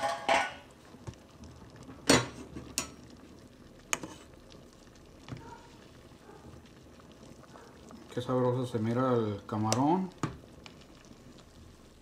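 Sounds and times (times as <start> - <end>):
kitchenware clinking on metal pot: 0.0 - 0.7.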